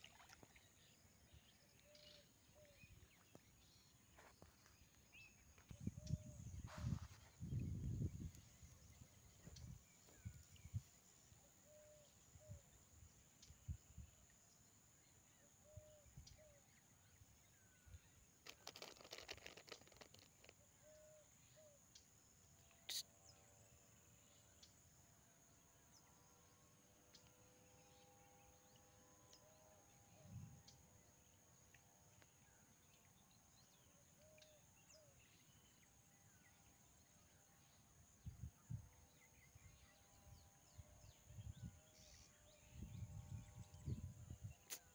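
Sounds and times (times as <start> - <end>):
small click: 44.6 - 44.9.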